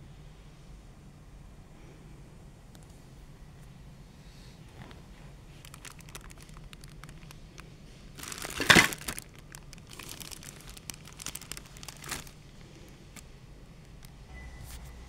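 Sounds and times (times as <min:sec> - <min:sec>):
plastic bags crinkling: 0:05.5 - 0:13.3.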